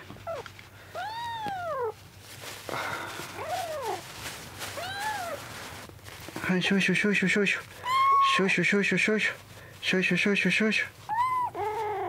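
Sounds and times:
kitten mewing: 0.1 - 2.0, 4.8 - 5.5, 7.8 - 8.6, 11.1 - 12.0.

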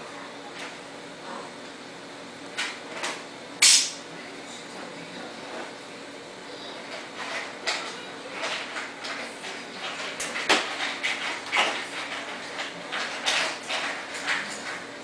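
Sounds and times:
sharp click: 3.6 - 4.0.

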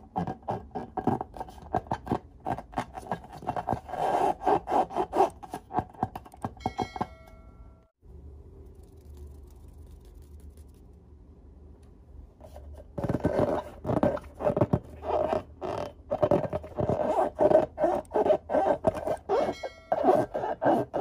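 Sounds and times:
rubber balloon squeaking: 13.1 - 21.0.

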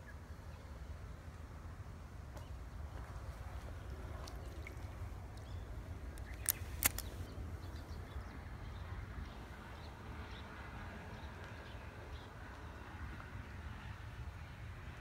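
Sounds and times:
sharp clicks: 6.2 - 7.3.

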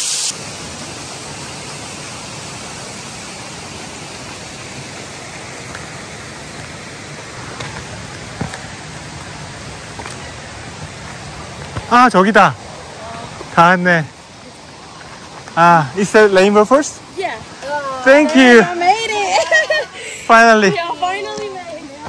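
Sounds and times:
waterfall rushing: 0.0 - 22.0.

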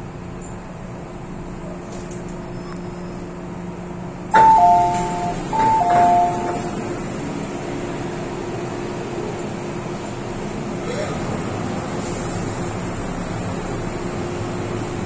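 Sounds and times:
moving train hum: 0.0 - 15.0
two-note ding-dong chime: 4.4 - 6.7.

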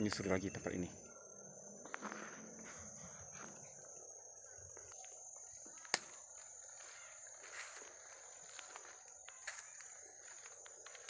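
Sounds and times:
crickets chorus: 0.0 - 11.0
footsteps through leaf litter: 6.8 - 11.0.

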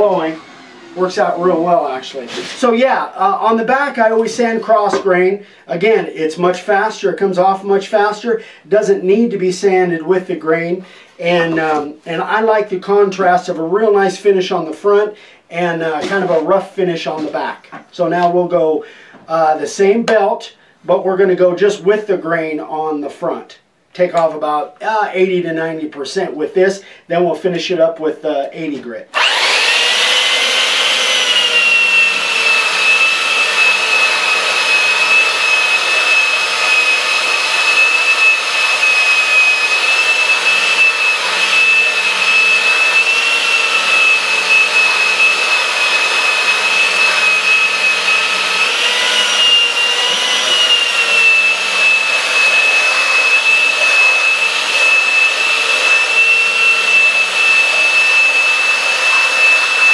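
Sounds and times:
belt sander motor whine: 0.0 - 5.0, 29.1 - 59.9.

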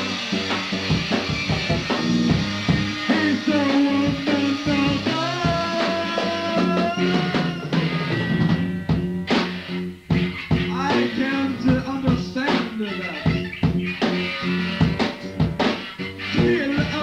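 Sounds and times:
bass line: 0.0 - 17.0
sliding guitar notes: 0.0 - 17.0
steady drum hits: 4.0 - 10.8.

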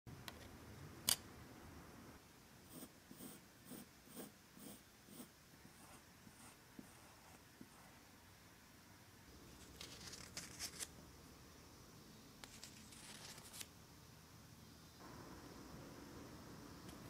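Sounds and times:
pencil sketching on paper: 2.7 - 8.0.

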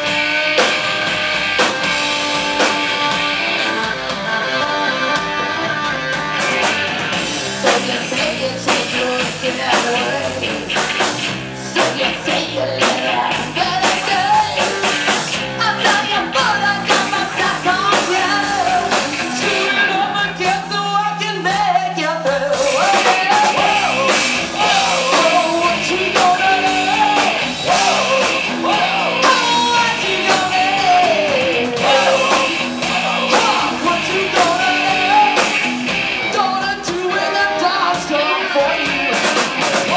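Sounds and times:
drums: 0.0 - 39.9
electric guitars: 0.0 - 39.9
woman singing: 7.6 - 10.6, 11.6 - 14.8, 15.6 - 35.6.

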